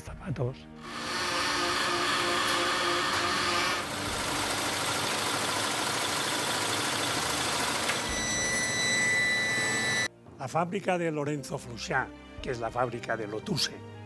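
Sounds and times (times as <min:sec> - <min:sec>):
factory machines whirring: 0:00.8 - 0:10.1.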